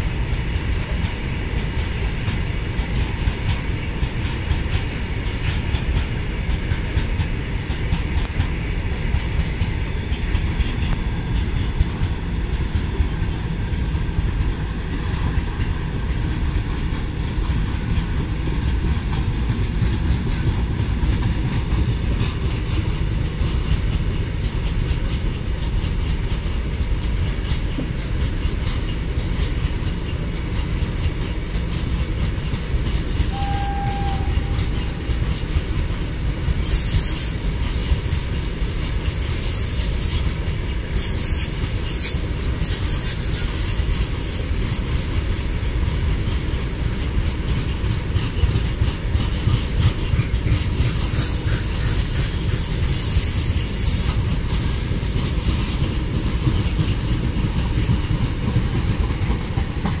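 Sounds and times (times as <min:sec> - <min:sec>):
train wheels rumbling on rail: 0:00.0 - 1:00.0
high-pitched wheel squeal: 0:32.0 - 0:34.8, 0:50.8 - 0:56.4.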